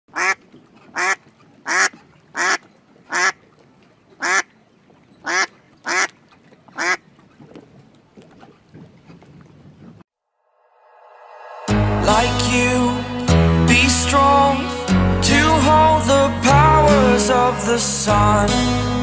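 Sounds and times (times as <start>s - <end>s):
duck quacking: 0.1s - 3.4s, 4.2s - 4.5s, 5.2s - 7.0s.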